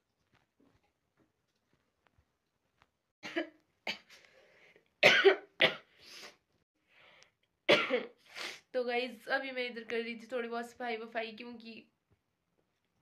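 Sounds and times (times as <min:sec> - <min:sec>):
woman coughing: 0:03.2 - 0:04.1, 0:05.0 - 0:05.9, 0:07.7 - 0:08.2
breaths: 0:04.1 - 0:04.9, 0:05.9 - 0:07.4.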